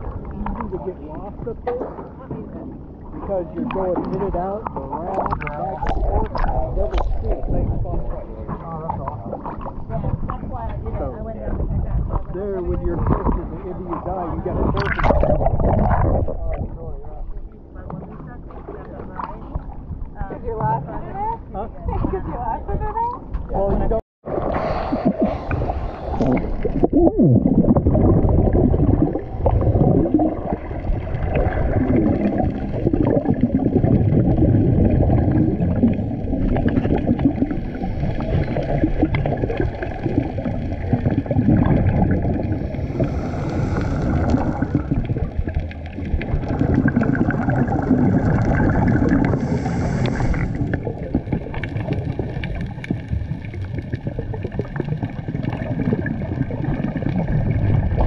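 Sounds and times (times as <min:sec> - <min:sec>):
scuba exhaust bubbles gurgling: 0:00.0 - 0:02.2, 0:02.8 - 0:17.4, 0:24.2 - 0:58.0
underwater low rumble: 0:00.0 - 0:58.0
water splash: 0:12.1 - 0:17.0, 0:24.2 - 0:58.0.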